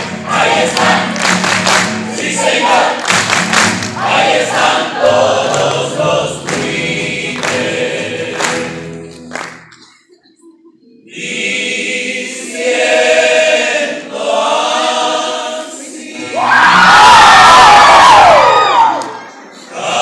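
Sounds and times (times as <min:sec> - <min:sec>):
male voices singing in harmony: 0:00.0 - 0:01.1, 0:04.0 - 0:09.3, 0:11.0 - 0:16.6, 0:19.6 - 0:20.0
strummed guitars: 0:00.0 - 0:09.9.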